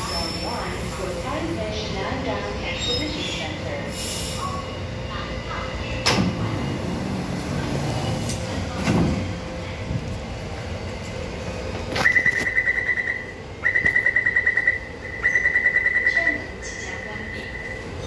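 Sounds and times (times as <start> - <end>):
high-pitched door warning beeping: 12.0 - 17.8.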